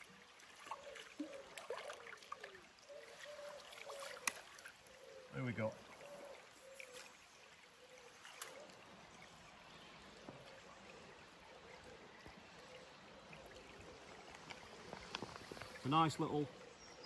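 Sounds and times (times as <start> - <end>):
faint flowing river water: 0.0 - 17.0.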